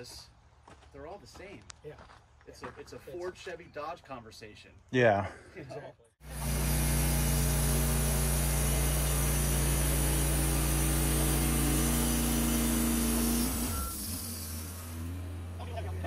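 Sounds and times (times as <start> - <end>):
sawmill engine droning: 6.2 - 16.0
band blade cutting log: 6.3 - 15.0.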